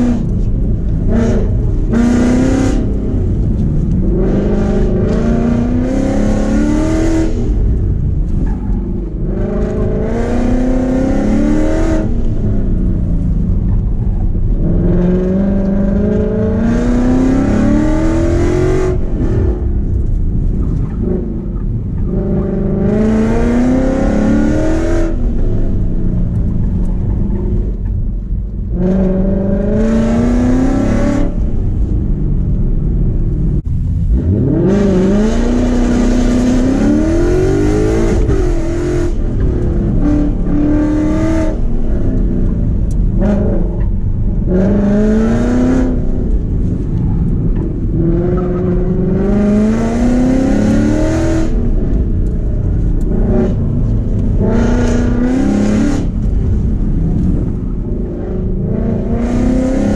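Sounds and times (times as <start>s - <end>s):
car engine revving: 0.0s - 59.9s.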